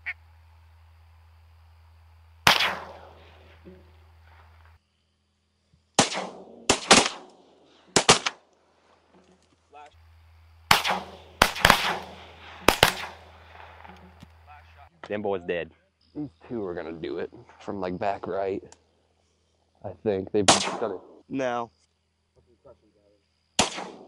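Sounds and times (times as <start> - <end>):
shotgun blasts with echo: 2.4 - 3.2, 6.0 - 8.4, 10.7 - 13.8, 20.5 - 21.1, 23.6 - 24.0.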